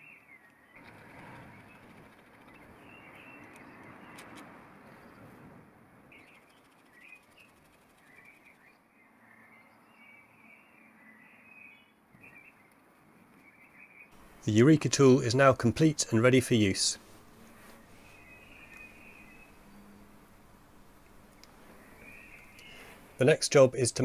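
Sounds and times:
faint birds chirping: 0.0 - 5.4, 6.0 - 24.0.

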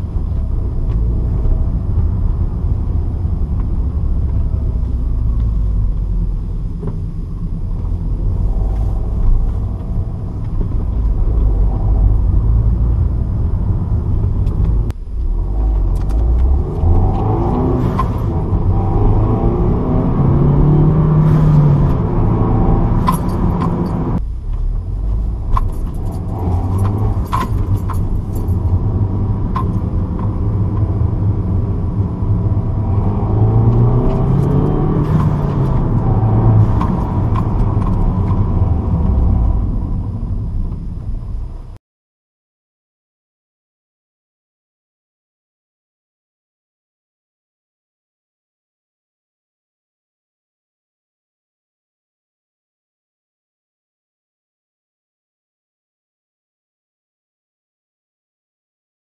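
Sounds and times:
car engine while driving: 0.0 - 41.8.

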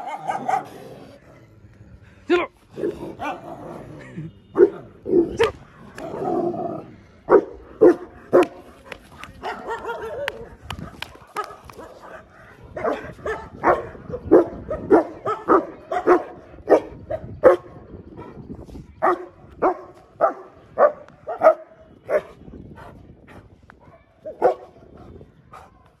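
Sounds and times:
dog barking: 0.0 - 0.7, 7.3 - 8.6, 9.4 - 17.7, 19.0 - 22.3, 23.8 - 24.7.

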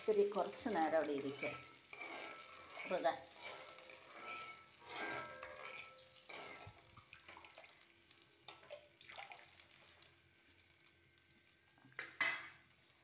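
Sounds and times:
spoon stirring thick mixture: 0.0 - 7.8.

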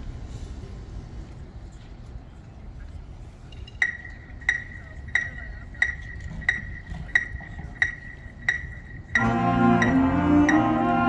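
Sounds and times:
metronome ticking: 3.6 - 11.0
band playing sustained chord: 9.1 - 11.0.

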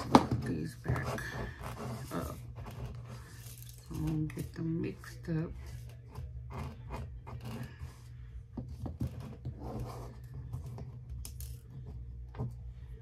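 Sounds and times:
rhinestones clicking and rattling: 3.2 - 4.6, 11.1 - 11.8.

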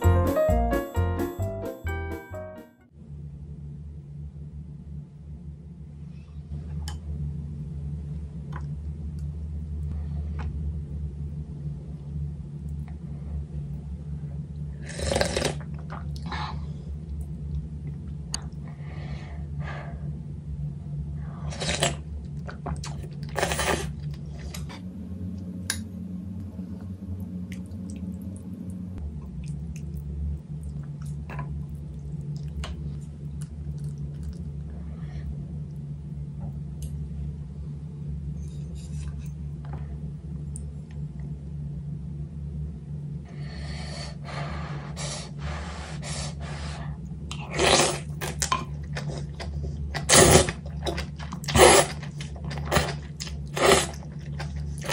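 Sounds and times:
steady low hum: 0.0 - 54.9
close chewing and mouth noises: 27.2 - 35.8, 47.0 - 54.9.

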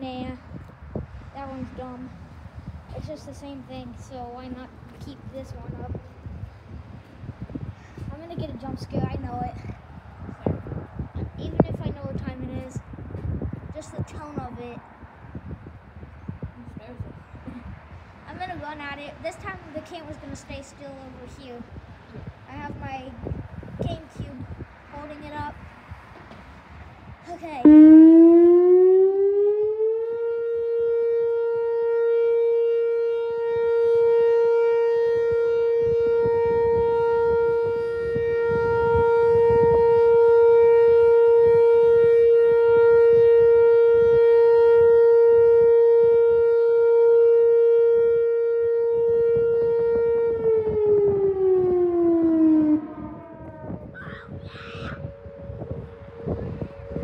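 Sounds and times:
rotating warning siren: 27.6 - 57.0.

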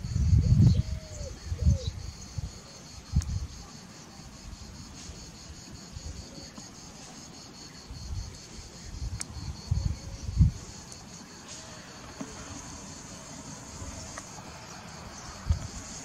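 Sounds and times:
wind buffeting microphone: 0.0 - 3.6, 7.9 - 11.0, 13.7 - 16.0
crickets trilling: 0.0 - 16.0.

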